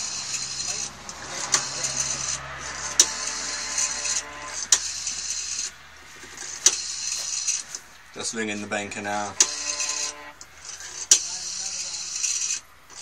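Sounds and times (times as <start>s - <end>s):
rotary telephone dial whirring: 9.4s - 13.0s.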